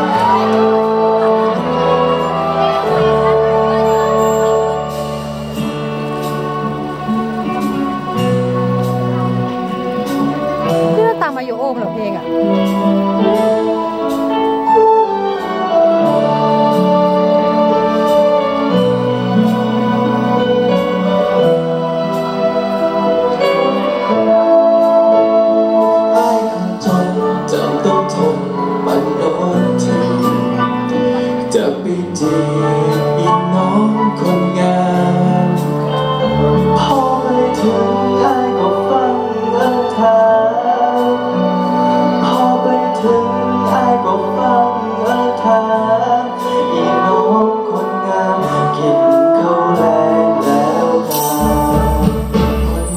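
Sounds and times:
man singing: 0.0s - 11.0s, 12.2s - 52.9s
keyboard and electric guitar chords: 0.0s - 52.9s
live pop band playing: 0.0s - 52.9s.

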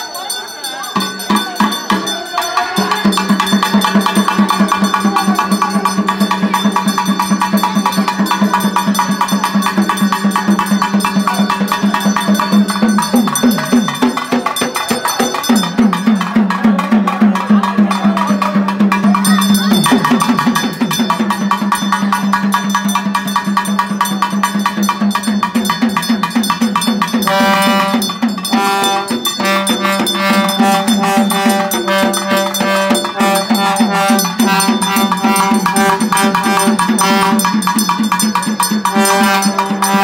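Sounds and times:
clanging metal beat: 1.0s - 40.0s
fast hand-drumming: 1.0s - 40.0s
melody of long held notes: 27.2s - 37.8s.

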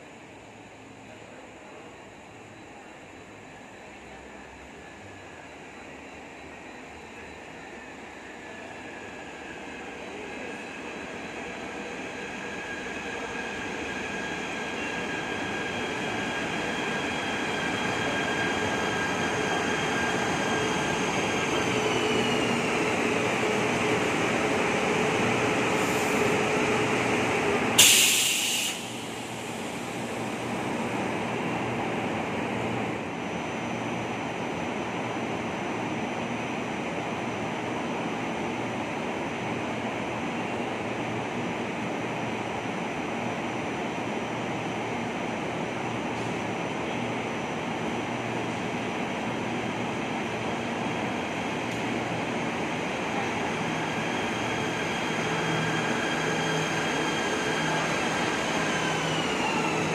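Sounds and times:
train standing low hum: 0.1s - 59.9s
air brake hiss: 27.8s - 30.2s.

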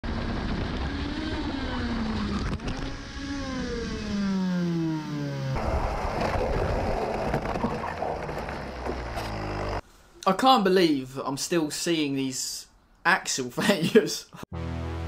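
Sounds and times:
kart engine: 0.1s - 9.8s.

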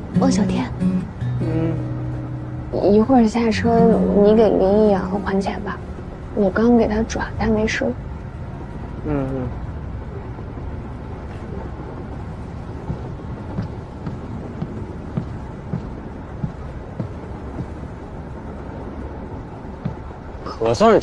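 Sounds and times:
train rumbling inside carriage: 0.0s - 21.0s
light knocks: 12.8s - 17.8s, 19.8s - 20.2s.

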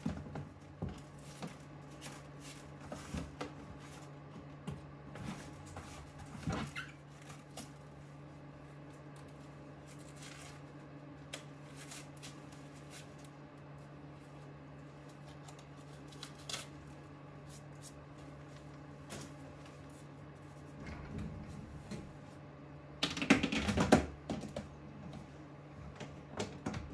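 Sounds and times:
plastic bags and grain rustling: 0.0s - 20.8s
steady low hum: 0.0s - 26.9s.

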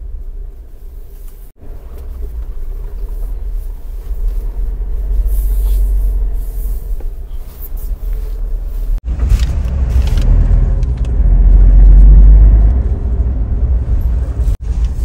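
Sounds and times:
car driving on tarmac: 0.0s - 15.0s.

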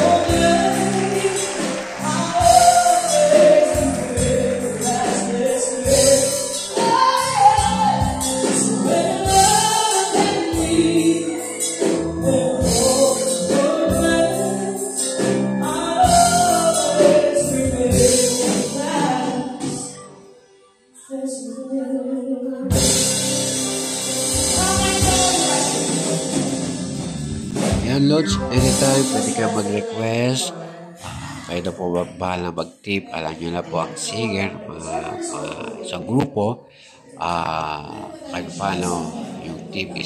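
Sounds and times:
drums: 0.0s - 20.0s, 22.7s - 29.7s
electric guitar: 0.0s - 20.0s, 22.7s - 30.1s
woman singing into microphone: 0.0s - 20.2s, 21.0s - 23.1s, 24.4s - 26.5s.

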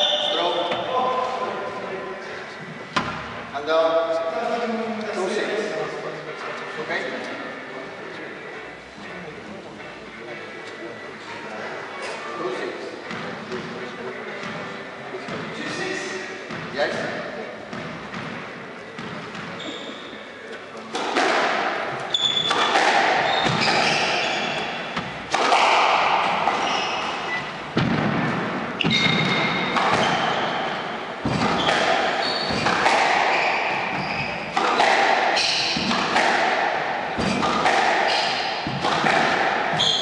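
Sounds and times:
squash ball hitting rackets and walls: 2.9s - 3.4s, 20.9s - 40.0s
shoes squeaking on wooden floor: 19.4s - 20.2s, 21.9s - 25.3s, 26.4s - 27.7s, 28.8s - 36.0s, 37.2s - 40.0s.

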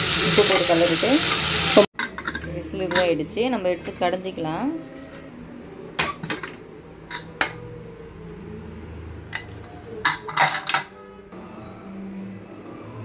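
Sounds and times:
metal cookware clanking: 2.0s - 3.5s, 6.0s - 7.6s, 9.4s - 11.0s.

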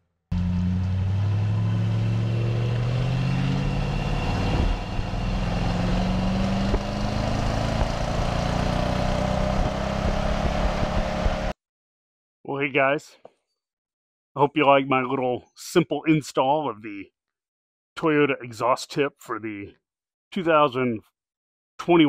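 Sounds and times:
truck engine accelerating: 0.3s - 11.6s
road and wind noise: 0.4s - 11.5s.

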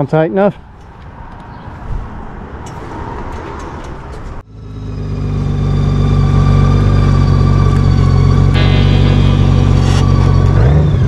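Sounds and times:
motorcycle engine running: 6.1s - 11.0s.

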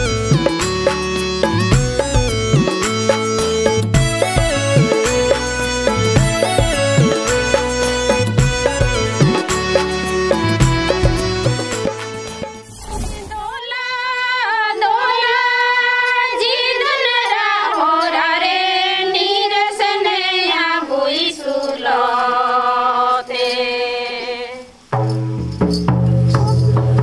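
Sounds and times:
band with heavy drum beat: 0.0s - 12.5s
woman singing unaccompanied: 13.1s - 24.8s, 26.3s - 27.0s.

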